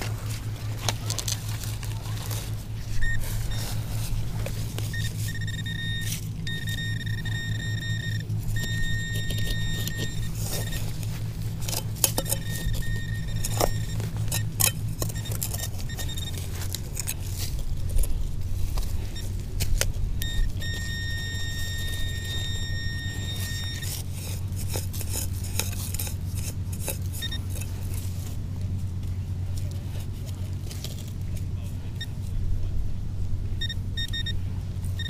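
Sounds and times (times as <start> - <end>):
digging clicks and rattles: 0.0 - 32.4
low engine hum: 0.0 - 35.0
metal detector high tone: 2.1 - 16.7, 20.2 - 24.4, 33.6 - 34.4.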